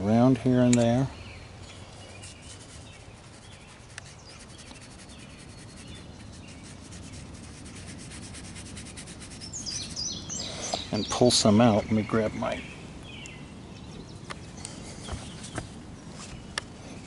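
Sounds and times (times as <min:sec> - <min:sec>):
outdoor background noise: 0:00.0 - 0:17.0
paintbrush rubbing on paper: 0:02.1 - 0:10.4.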